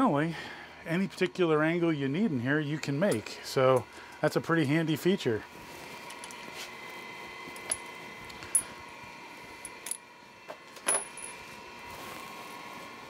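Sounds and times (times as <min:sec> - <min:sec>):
faint steady hum: 0:00.0 - 0:13.0
metallic clinks of steel parts: 0:10.8 - 0:11.4.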